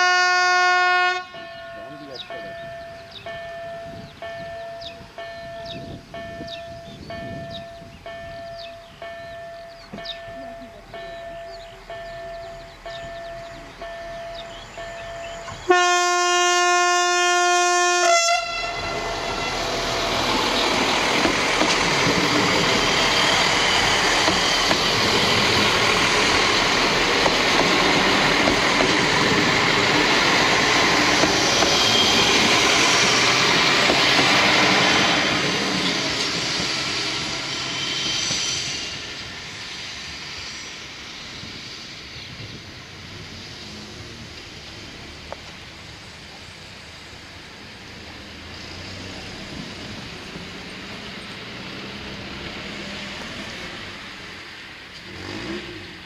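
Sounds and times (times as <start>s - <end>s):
train horn blast: 0.0s - 2.0s, 15.6s - 19.8s
train passing: 0.0s - 56.0s
level-crossing warning bell: 1.2s - 17.0s.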